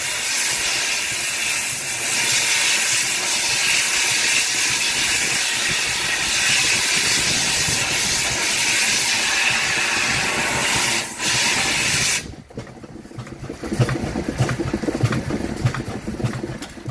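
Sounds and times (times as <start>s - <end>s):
steam hissing from boiler: 0.0s - 12.3s
steam engine rhythmic clatter: 0.0s - 16.9s.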